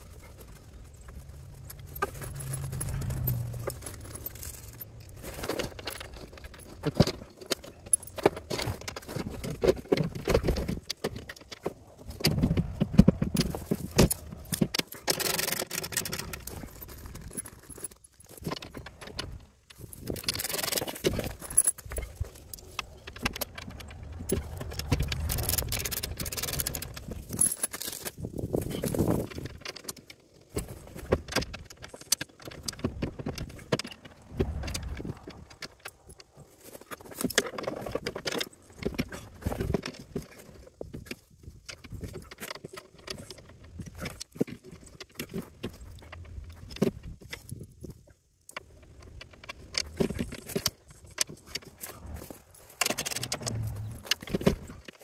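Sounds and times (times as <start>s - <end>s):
knocks and scrapes: 0.0s - 55.0s
rustling: 0.0s - 55.0s
metal hardware clinking: 1.5s - 9.1s, 19.9s - 28.1s.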